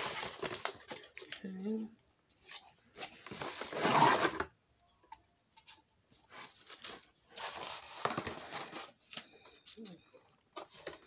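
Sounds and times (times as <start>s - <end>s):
rustling and crinkling of items: 0.0s - 11.0s.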